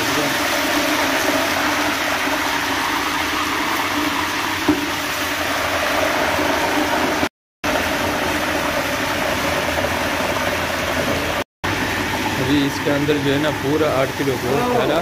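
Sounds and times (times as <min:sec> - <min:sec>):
meat sizzling in a pot: 0:00.0 - 0:11.2.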